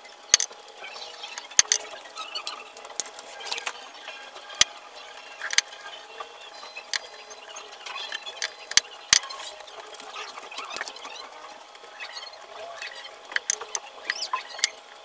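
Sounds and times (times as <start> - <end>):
sharp clicks: 0.3 - 3.8, 5.4 - 5.8, 7.9 - 14.8.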